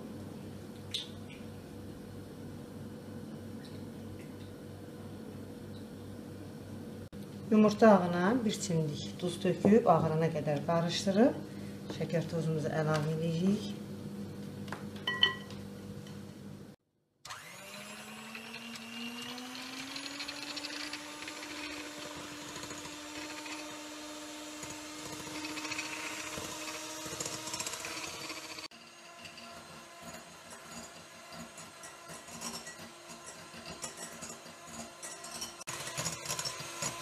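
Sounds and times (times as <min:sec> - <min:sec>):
electric mixer whirring: 0:17.3 - 0:35.0, 0:35.6 - 0:37.0.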